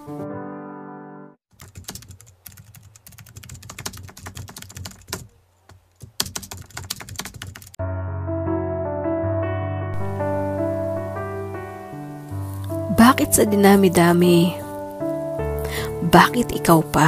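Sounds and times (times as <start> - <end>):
piano music: 0.0 - 1.4, 7.8 - 17.0
typing on keyboard: 1.5 - 7.8.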